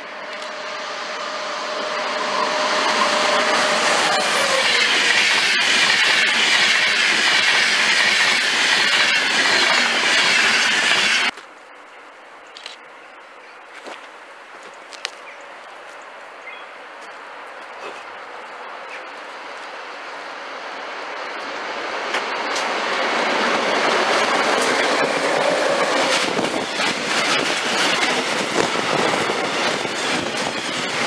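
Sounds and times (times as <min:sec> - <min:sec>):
train passing at speed: 0:00.0 - 0:11.3, 0:18.2 - 0:31.0
train wheels rushing on rails: 0:00.0 - 0:11.4, 0:18.6 - 0:31.0.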